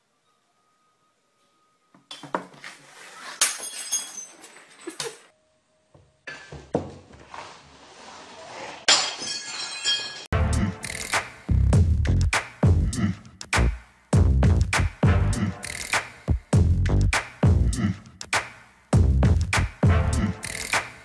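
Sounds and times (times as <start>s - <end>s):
glassy crash: 8.9s - 10.3s.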